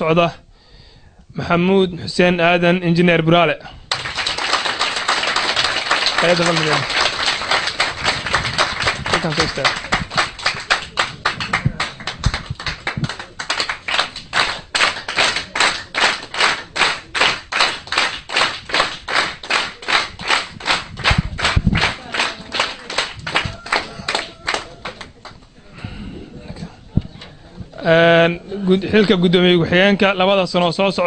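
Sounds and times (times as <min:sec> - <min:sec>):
crowd clapping in unison: 0:03.9 - 0:25.5.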